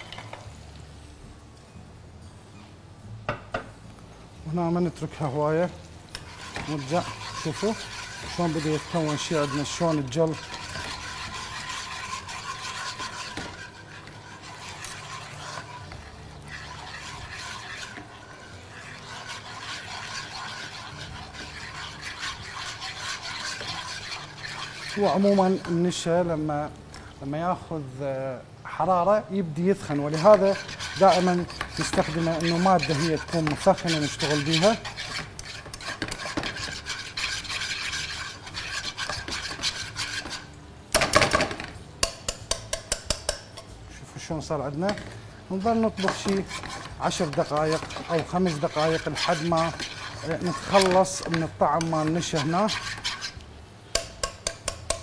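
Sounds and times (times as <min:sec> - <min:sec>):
whisk scraping a ceramic pan: 0:05.2 - 0:26.3, 0:29.6 - 0:40.6, 0:44.4 - 0:55.0.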